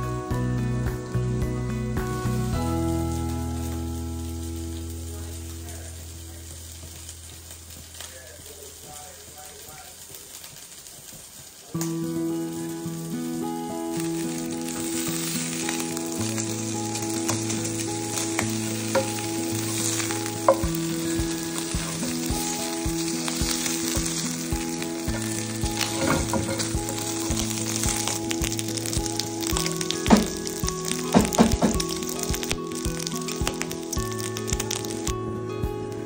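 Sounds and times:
soft background music: 0.0s - 9.9s, 11.8s - 36.0s
food sizzling in a pan: 0.8s - 36.0s
spatula stirring: 14.1s - 34.9s
small pops and clicks: 14.3s - 35.2s.

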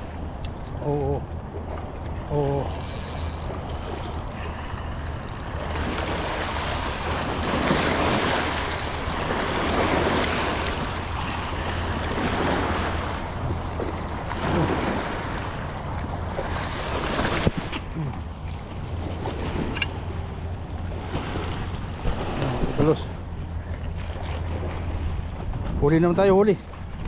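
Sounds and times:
steady low hum: 0.0s - 25.8s
water rushing at shore: 0.0s - 27.0s
wind: 0.0s - 27.0s.

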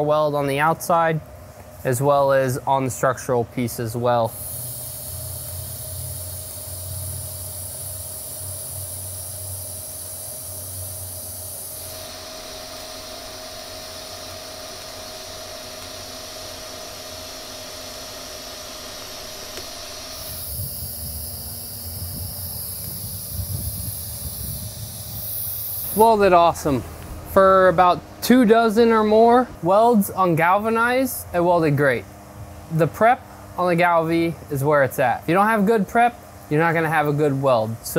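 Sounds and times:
welding arc hissing: 3.6s - 31.9s.

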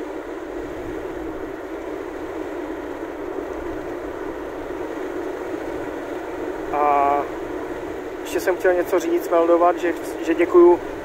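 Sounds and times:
car road and engine noise: 0.0s - 11.0s.

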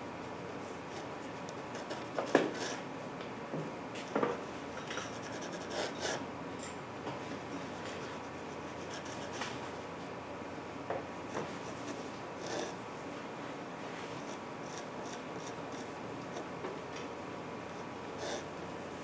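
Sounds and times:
pencil scratching on paper: 1.7s - 2.8s, 5.0s - 6.2s, 7.7s - 9.5s, 11.3s - 12.8s, 14.2s - 16.5s, 18.2s - 18.5s.

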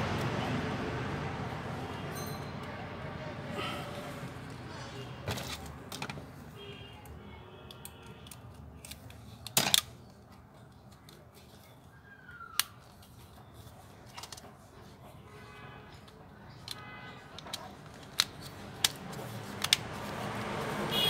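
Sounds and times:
plastic phone parts clicking: 7.7s - 11.2s, 16.5s - 16.8s, 17.4s - 19.9s.

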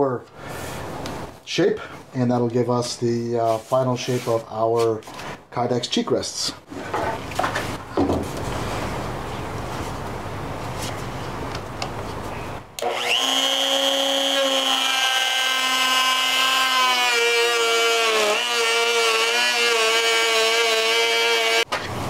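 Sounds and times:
router motor high whine: 12.8s - 21.6s.

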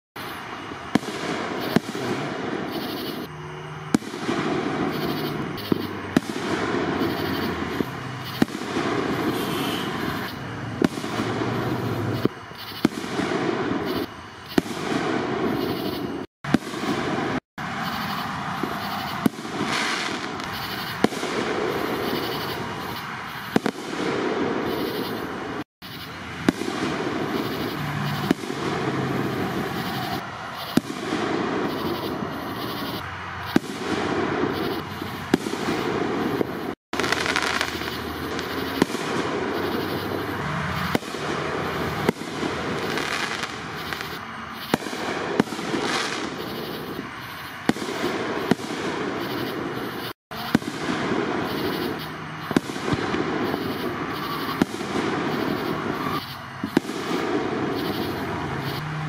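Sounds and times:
fireworks bangs: 0.2s - 59.0s
fireworks crackle: 0.2s - 59.0s.

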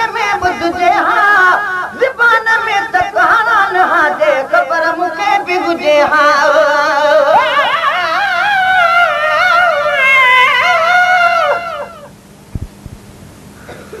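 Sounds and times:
solo voice singing devotional song: 0.0s - 12.1s.

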